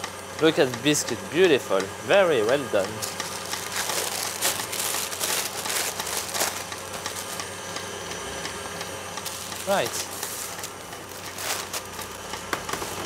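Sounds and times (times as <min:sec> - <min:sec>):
baking paper rustling and crinkling: 0:03.0 - 0:07.4, 0:09.3 - 0:13.0.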